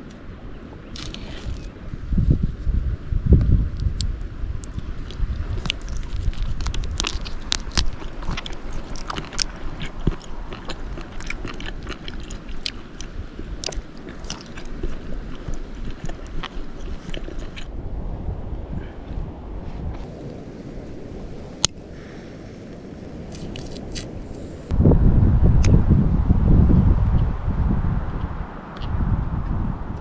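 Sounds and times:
wind rumble on microphone: 0.0s - 30.0s.

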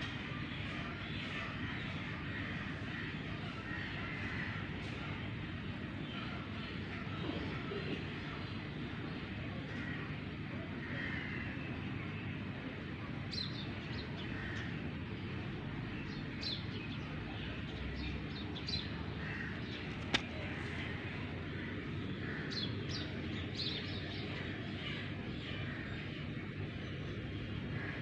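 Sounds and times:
sharp click: 20.0s - 20.4s.

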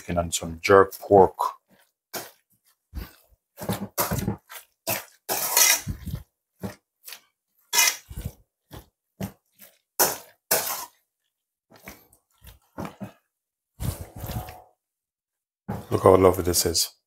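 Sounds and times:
spoon stirring wet crunchy salad: 0.9s - 13.2s.

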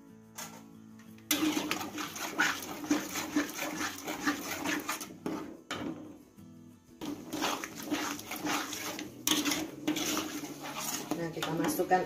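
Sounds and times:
spatula scraping paste in a wok: 1.3s - 5.6s, 7.0s - 12.0s.

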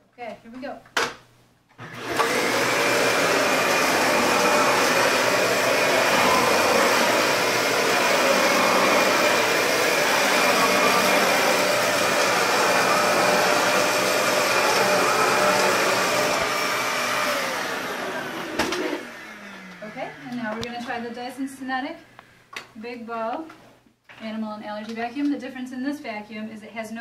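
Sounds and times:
vacuum cleaner running on carpet: 1.8s - 20.6s.

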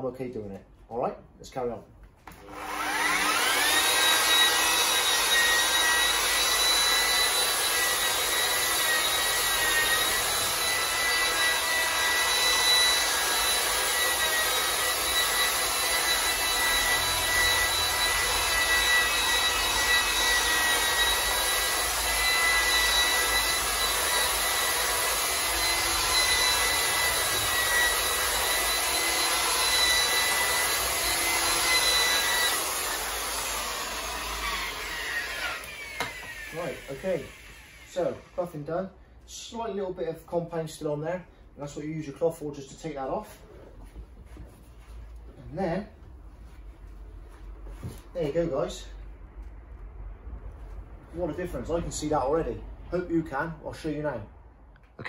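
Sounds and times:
electric polisher motor whine: 2.3s - 38.3s.

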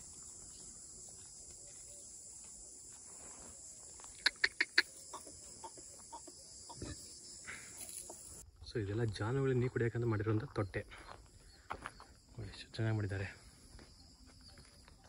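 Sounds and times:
short loud bird calls: 4.1s - 8.4s.

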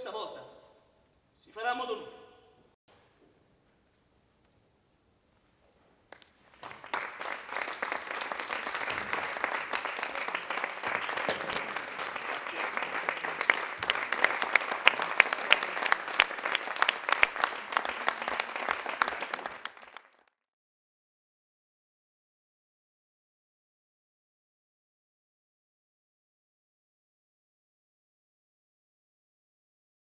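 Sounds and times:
single sharp claps: 6.1s - 20.1s
audience applauding: 6.2s - 20.3s.

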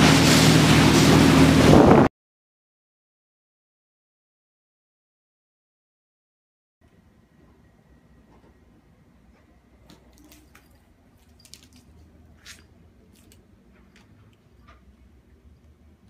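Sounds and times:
low room hum: 6.8s - 16.0s.

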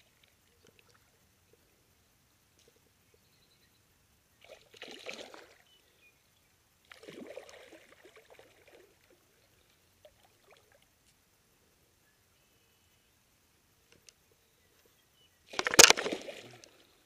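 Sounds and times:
water splashing: 4.4s - 5.6s, 6.9s - 9.2s, 15.5s - 16.8s.

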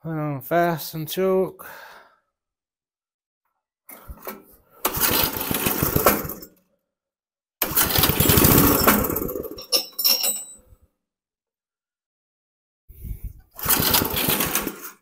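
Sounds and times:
small engine starting and dying: 4.8s - 6.6s, 7.6s - 9.7s, 13.6s - 15.0s.

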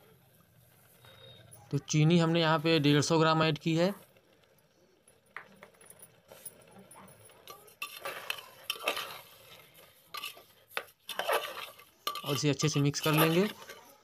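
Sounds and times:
metal spatula scraping a pot: 7.3s - 14.0s.

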